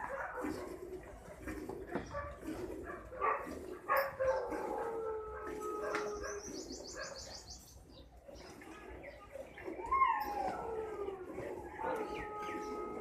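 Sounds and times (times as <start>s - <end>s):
long steady animal call: 3.9s - 7.7s, 8.3s - 13.0s.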